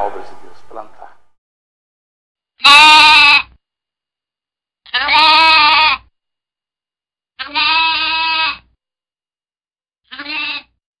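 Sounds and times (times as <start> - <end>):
animal bleating: 2.6 - 3.5, 4.9 - 6.1, 7.4 - 8.7, 10.1 - 10.8.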